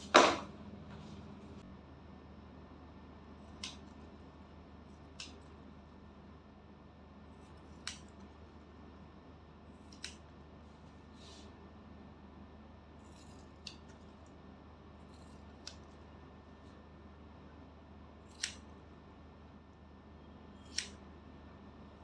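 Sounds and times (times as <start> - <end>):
low steady hum: 0.0 - 22.0
scissors snipping hair: 3.5 - 4.0, 5.0 - 5.6, 7.5 - 8.3, 9.8 - 10.3, 13.0 - 14.3, 15.0 - 16.0, 18.3 - 18.7, 20.6 - 21.0.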